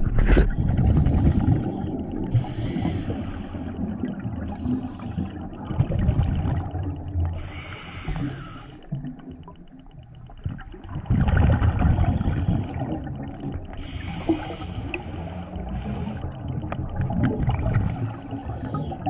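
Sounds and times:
exhaled bubbles rumbling: 0.0s - 19.0s
regulator inhalation hiss: 2.4s - 3.7s, 7.4s - 8.8s, 13.8s - 15.2s.

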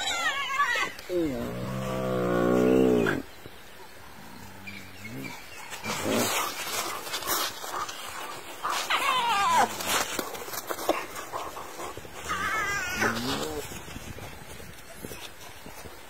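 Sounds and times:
wild dogs yelping and squealing: 0.0s - 1.1s, 4.4s - 13.8s.

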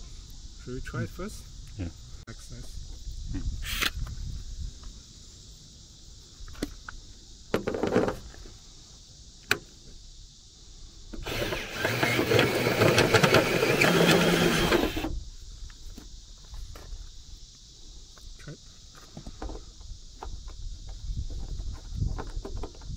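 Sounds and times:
drill cutting through metal: 11.2s - 15.1s.

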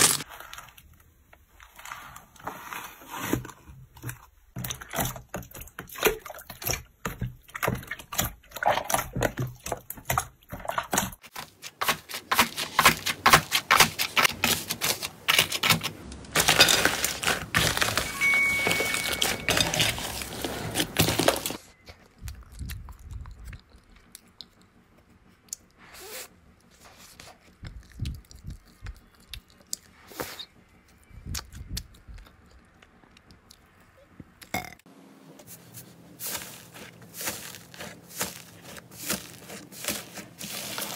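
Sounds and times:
dried slime crackling and crunching: 11.0s - 25.8s, 26.6s - 33.8s, 35.5s - 40.9s.

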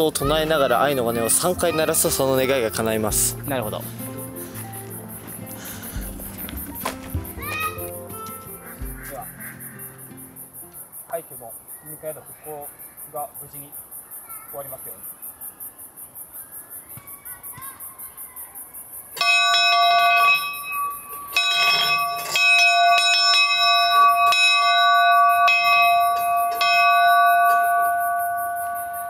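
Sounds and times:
pulsing insect chorus: 0.0s - 29.0s
hanging bell ringing: 19.2s - 29.0s.

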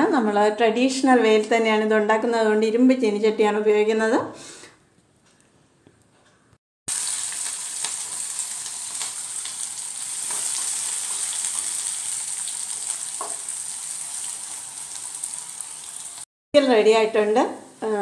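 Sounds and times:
spices sizzling in hot oil: 6.9s - 18.0s.

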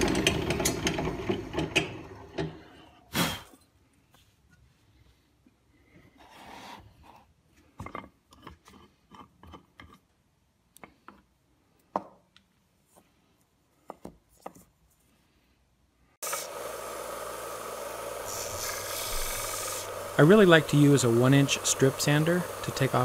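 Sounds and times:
belt sander running: 16.2s - 23.0s.

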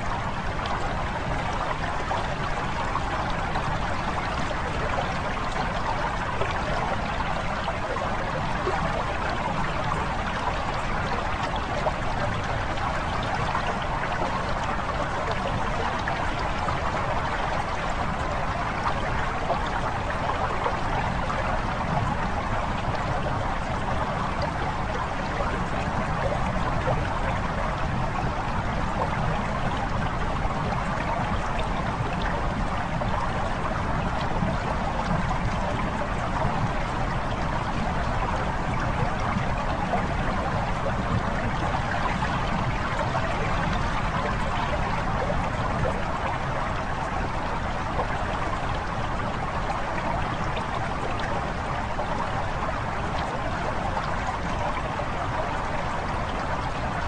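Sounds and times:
flowing lapping water: 0.0s - 57.0s.

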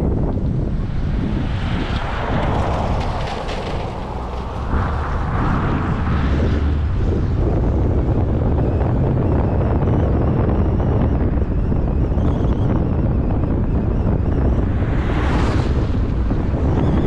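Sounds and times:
rushing noise: 0.0s - 12.1s
wind buffeting microphone: 0.0s - 17.0s.

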